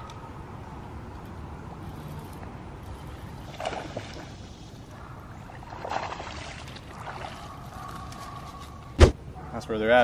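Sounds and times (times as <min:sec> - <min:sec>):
fish splashing on pond surface: 0:03.0 - 0:04.7, 0:05.4 - 0:08.0.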